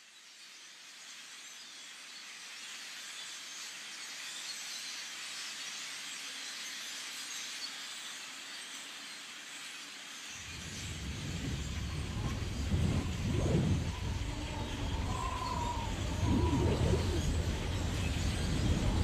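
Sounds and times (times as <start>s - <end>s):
storm hiss: 10.3s - 19.0s.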